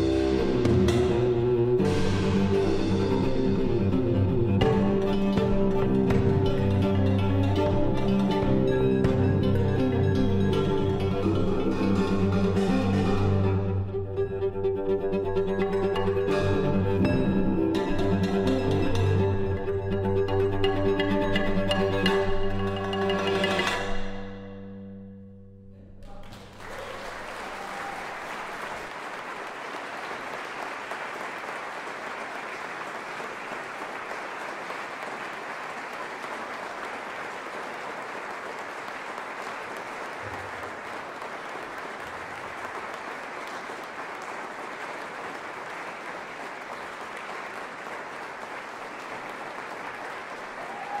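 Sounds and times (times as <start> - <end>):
audience applauding: 26.0 - 51.0.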